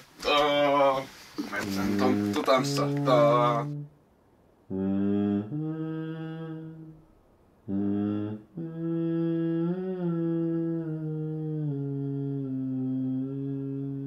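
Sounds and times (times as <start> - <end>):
person humming: 1.4 - 3.9, 4.7 - 7.0, 7.7 - 14.0.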